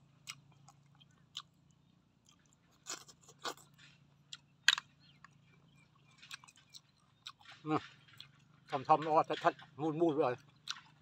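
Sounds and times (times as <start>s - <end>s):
man sucking and chewing: 2.2s - 4.4s.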